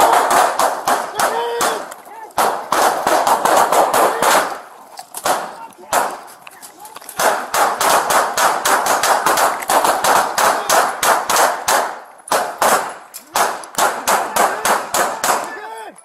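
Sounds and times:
rapid gunshots: 0.0s - 4.6s, 5.2s - 6.2s, 7.2s - 15.5s.

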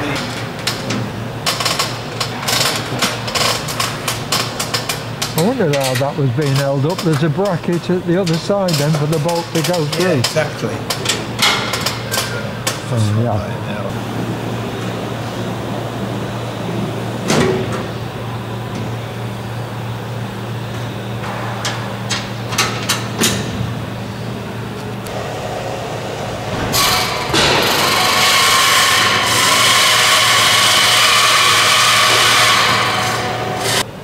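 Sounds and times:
steady hum: 0.0s - 34.0s
power tool running: 25.1s - 33.9s.

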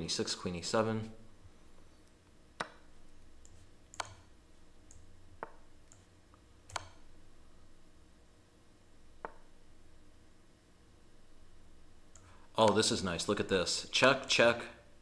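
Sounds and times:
faint low hum: 0.0s - 15.0s
sharp mouse clicks: 3.4s - 4.2s, 6.7s - 7.0s.

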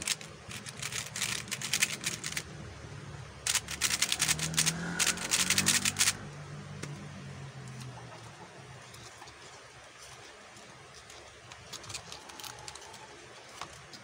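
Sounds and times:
plastic puzzle cube layers clacking: 0.0s - 2.5s, 3.4s - 6.2s.

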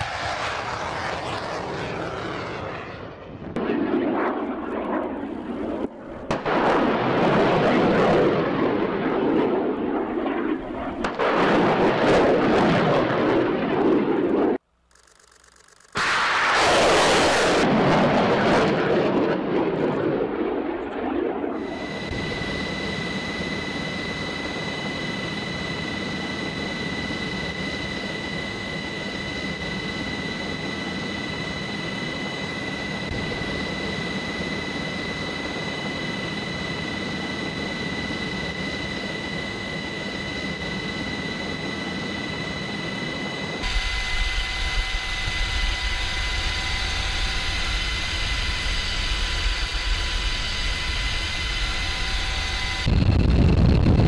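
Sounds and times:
aircraft engine drone: 0.0s - 54.0s
high-pitched whine: 20.2s - 54.0s.

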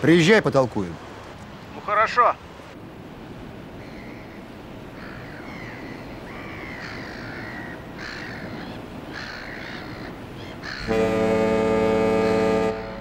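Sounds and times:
birds calling: 3.7s - 13.0s
deep ship horn blast: 10.8s - 13.0s.

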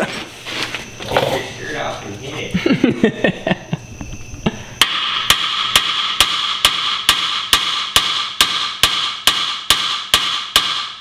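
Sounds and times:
hammer striking metal: 4.8s - 11.0s.

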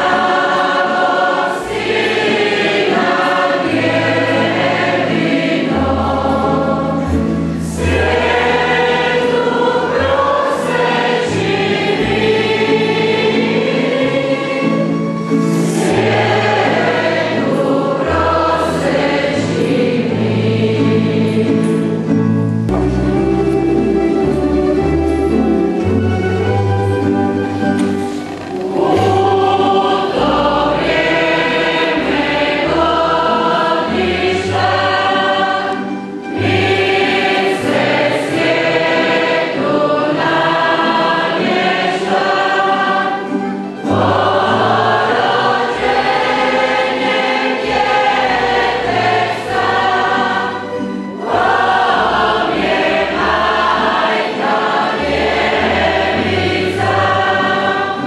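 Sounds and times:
choir singing: 0.0s - 58.0s
low bass line: 22.6s - 25.5s.

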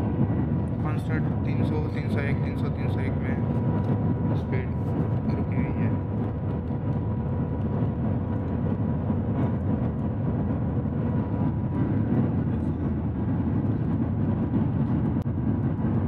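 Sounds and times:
faint steady whine: 0.0s - 16.0s
train cabin low rumble: 0.0s - 16.0s.

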